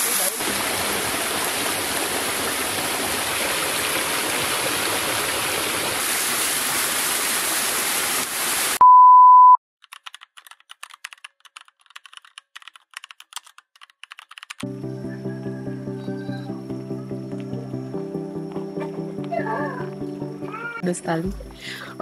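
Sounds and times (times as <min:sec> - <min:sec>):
waterfall rushing: 0:00.0 - 0:08.8
loud steady beep: 0:08.8 - 0:09.6
keyboard typing clicks: 0:09.8 - 0:14.6.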